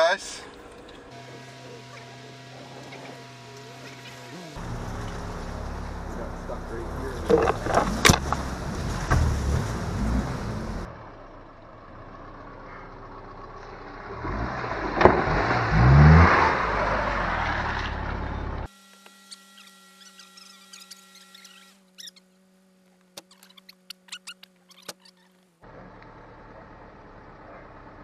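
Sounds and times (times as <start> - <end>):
car engine revving: 0.0 - 18.7
car splashing through water: 3.9 - 11.6
car knocking and clattering: 7.2 - 9.6.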